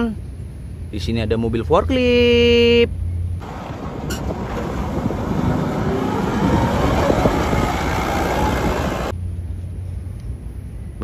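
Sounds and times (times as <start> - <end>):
forklift engine running: 3.4 - 9.1.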